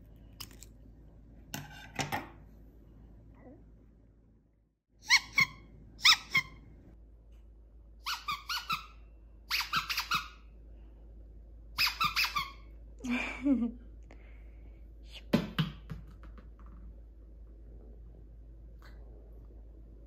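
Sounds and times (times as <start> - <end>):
squeaky toy ball squeaking: 5.0 - 6.6, 8.0 - 10.4, 11.8 - 12.7.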